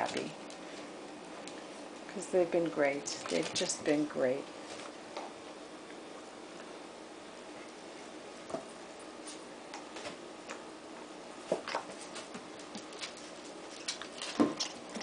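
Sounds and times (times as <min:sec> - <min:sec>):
dogs scuffling: 0:11.4 - 0:15.0.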